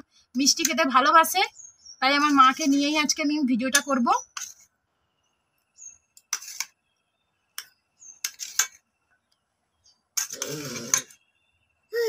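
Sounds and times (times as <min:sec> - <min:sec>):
spoon rasping on dish: 0:06.2 - 0:06.7, 0:08.2 - 0:08.8, 0:10.2 - 0:11.2.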